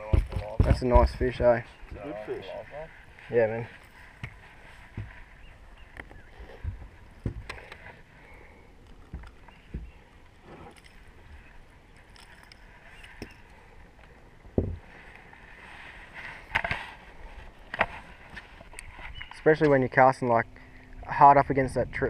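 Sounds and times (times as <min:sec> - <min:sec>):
dull knocks on boat deck: 0:14.6 - 0:14.8.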